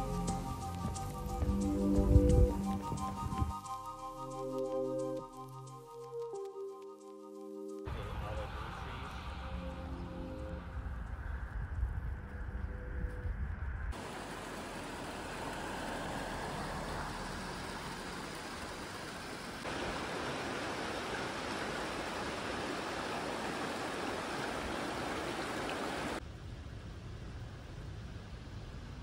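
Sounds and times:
stream water rushing over stones: 14.0 - 26.2.

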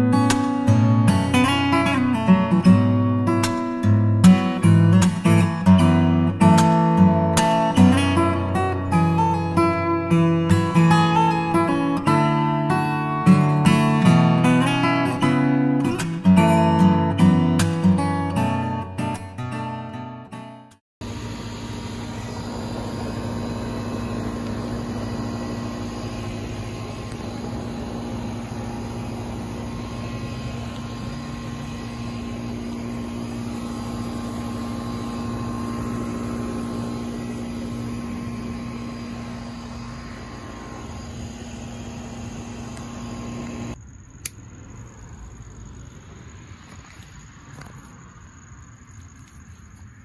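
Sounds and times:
machine hum: 21.0 - 46.0
single click: 44.2 - 44.4.

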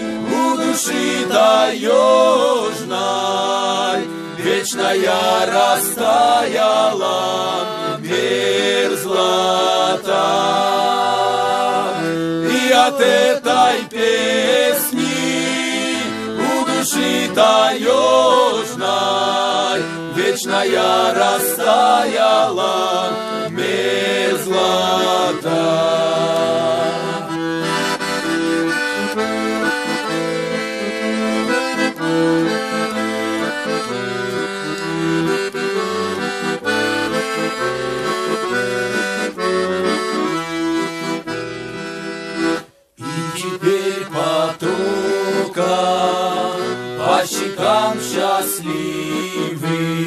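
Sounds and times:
piano accordion playing: 0.0 - 50.0.

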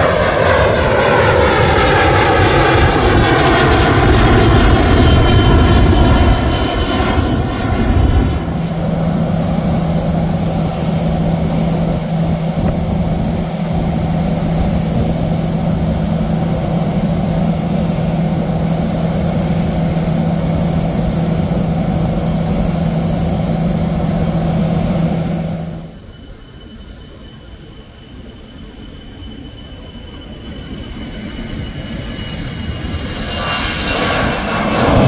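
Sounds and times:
distant jet with high whine: 0.0 - 35.0
jet engines droning: 0.0 - 35.0.

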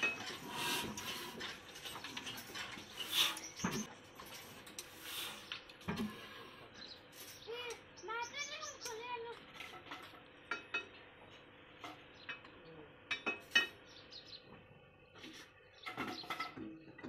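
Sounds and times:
metal clinks and knocks: 0.0 - 5.0.

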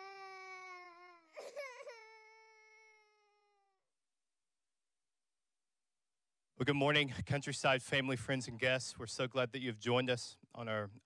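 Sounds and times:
toddler crying: 0.0 - 3.8.

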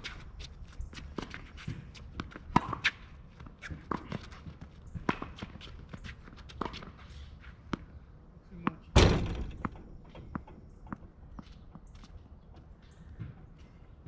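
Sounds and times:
tennis ball bouncing: 1.2 - 3.0
loud thump: 9.0 - 9.9.

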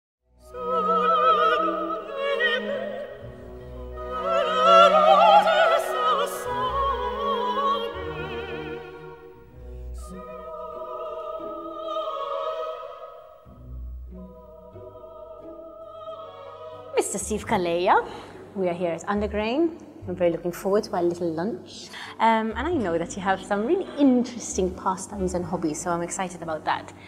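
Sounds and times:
operatic singing: 0.4 - 18.6
orchestral accompaniment: 0.4 - 26.7.

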